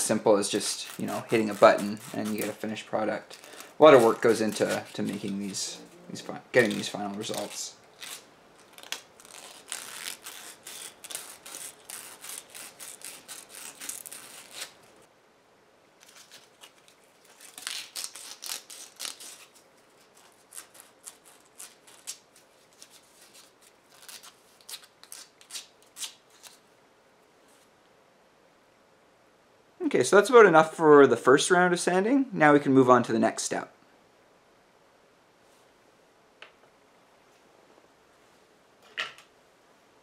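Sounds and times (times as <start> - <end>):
sandpaper scraping plastic: 0.0 - 15.0.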